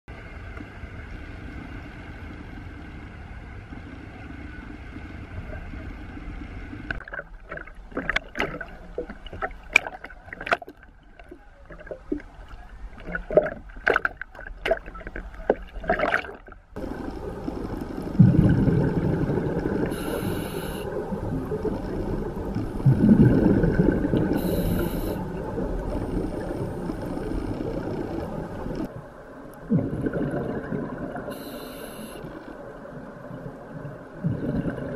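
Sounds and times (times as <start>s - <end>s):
waves slapping and splashing: 4.0s - 29.0s
wind and water rushing: 15.7s - 31.5s
diver exhaling bubbles: 15.9s - 28.9s, 29.6s - 32.2s, 34.2s - 34.9s
regulator hissing: 16.8s - 22.9s, 24.2s - 28.9s, 31.3s - 32.5s.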